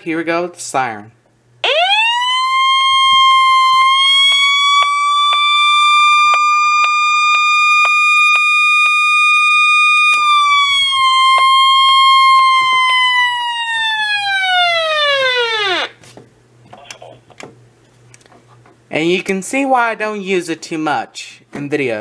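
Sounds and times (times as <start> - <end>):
shrill electronic siren tone: 1.6 - 16.0.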